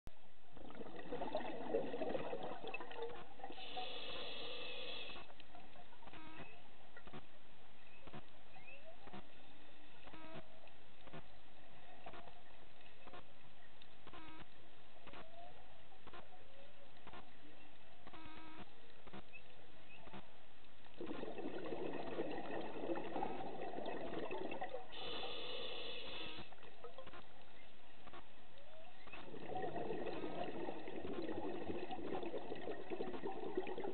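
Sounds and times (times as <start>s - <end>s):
underwater bubbling: 0.5s - 6.6s, 20.9s - 27.8s, 28.6s - 33.9s
regulator hiss: 3.6s - 5.2s, 24.9s - 26.5s
high hiss: 25.0s - 26.5s.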